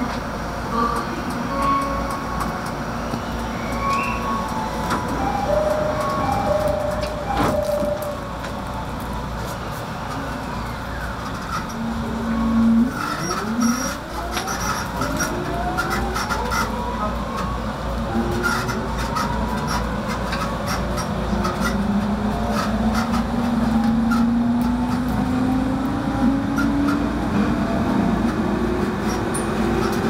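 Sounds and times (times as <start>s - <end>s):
train inverter rising whines: 0.0s - 16.1s
train interior noise: 0.0s - 30.0s.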